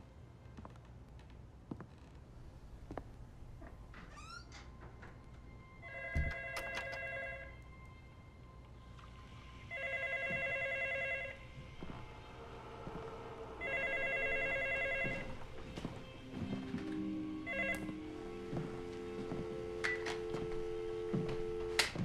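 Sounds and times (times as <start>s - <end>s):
telephone ringing: 5.8s - 7.5s, 9.7s - 11.4s, 13.6s - 15.3s, 17.4s - 18.0s.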